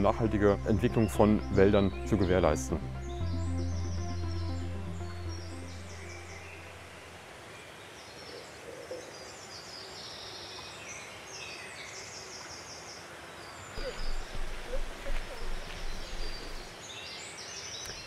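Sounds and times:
songbirds singing: 0:00.0 - 0:18.0
steady outdoor hiss: 0:00.0 - 0:18.0
uneven low rumble: 0:13.8 - 0:16.7.

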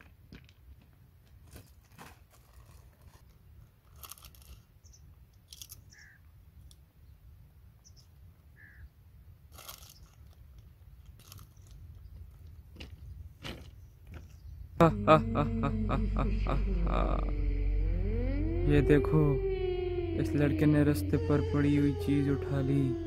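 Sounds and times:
crisps being crunched: 0:01.8 - 0:04.7, 0:09.5 - 0:10.4, 0:11.0 - 0:11.8.

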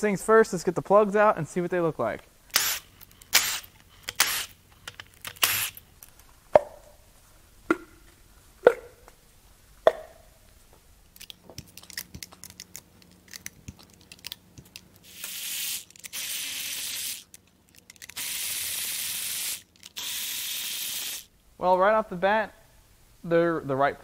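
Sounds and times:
parts clicking and rattling: 0:02.5 - 0:06.4, 0:11.0 - 0:20.2
cordless ratchet running: 0:15.0 - 0:17.4, 0:18.0 - 0:21.3.

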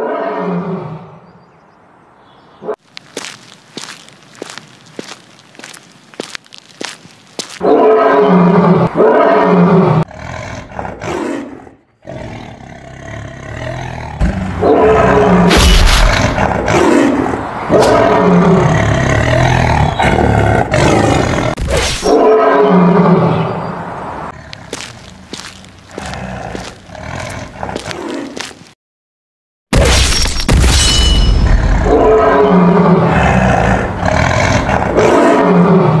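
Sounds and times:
big cat roars and growls: 0:07.6 - 0:23.6, 0:25.8 - 0:28.4, 0:31.3 - 0:36.0.

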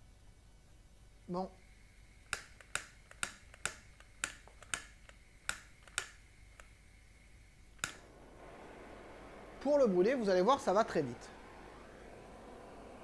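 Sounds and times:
igniter clicking: 0:02.2 - 0:06.8, 0:07.8 - 0:08.0.

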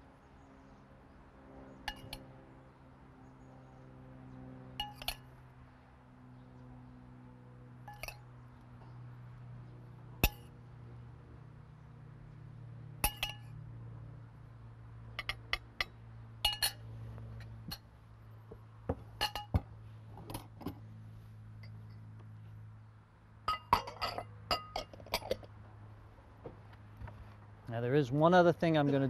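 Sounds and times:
steady low hum: 0:00.0 - 0:29.0
metal spoon clinking on bowls: 0:01.9 - 0:02.2, 0:04.8 - 0:05.3, 0:07.9 - 0:08.2, 0:13.0 - 0:13.5, 0:15.2 - 0:16.8, 0:19.2 - 0:19.6, 0:23.5 - 0:25.5.

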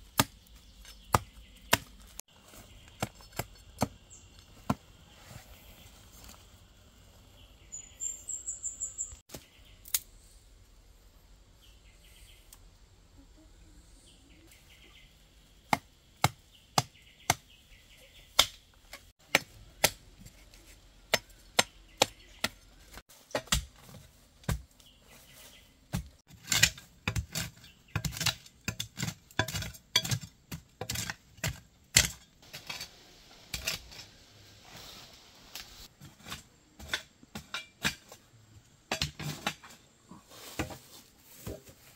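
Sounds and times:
machete chopping roots: 0:00.1 - 0:02.2, 0:23.2 - 0:24.9
hoe digging into soil: 0:26.0 - 0:34.2.

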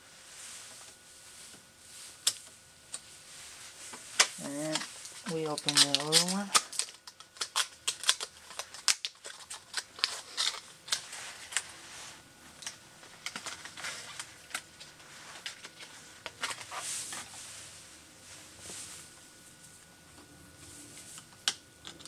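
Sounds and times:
plastic packaging rattling: 0:04.2 - 0:11.6, 0:12.6 - 0:16.8.

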